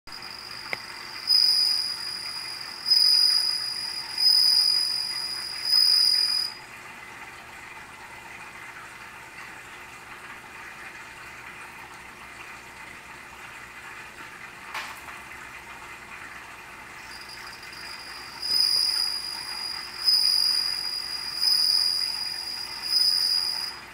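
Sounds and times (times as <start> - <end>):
cricket trilling: 0.1 - 6.6, 17.1 - 23.8.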